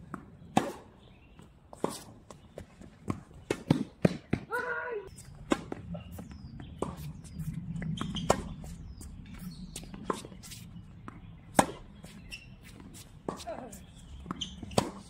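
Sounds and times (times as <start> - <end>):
tennis ball bounces: 1.7 - 4.6, 5.4 - 15.0
sneakers squeaking on court: 5.1 - 15.0.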